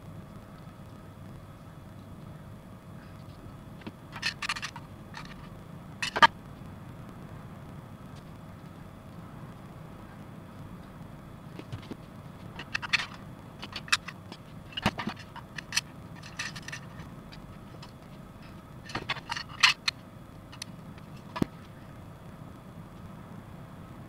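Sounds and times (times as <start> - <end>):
plastic parts clicking: 4.1 - 6.3, 12.6 - 17.1, 18.9 - 20.0.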